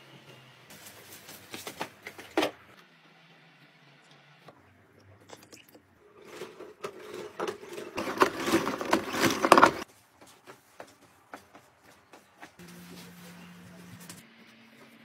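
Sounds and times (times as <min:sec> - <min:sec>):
plastic scraping and rattling: 0:06.2 - 0:09.9.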